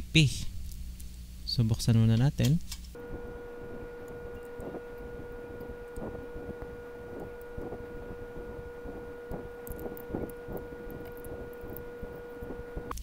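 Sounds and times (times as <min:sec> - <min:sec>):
electrical whine: 0:03.0 - 0:13.0.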